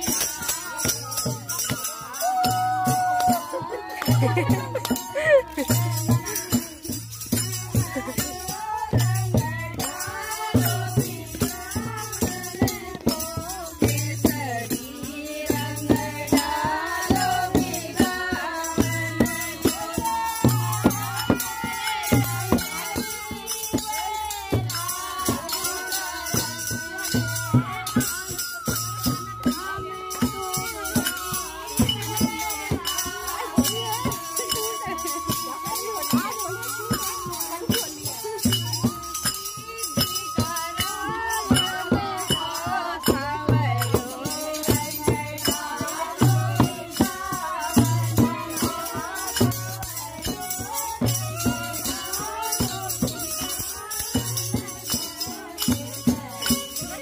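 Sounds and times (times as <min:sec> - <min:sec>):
jingling tambourine-like percussion: 0:00.0 - 0:57.0
steady drum beat: 0:00.0 - 0:57.0
person singing folk melody: 0:29.5 - 0:39.0.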